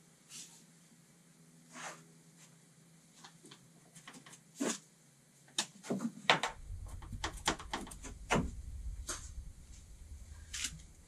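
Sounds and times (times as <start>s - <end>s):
tools clicking and knocking in metal van: 6.3s - 8.6s
low rumble: 6.5s - 11.0s.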